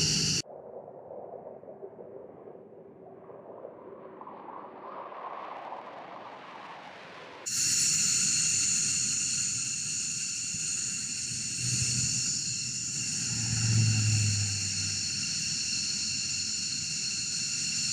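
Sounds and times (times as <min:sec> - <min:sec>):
jet taking off: 0:00.0 - 0:00.4.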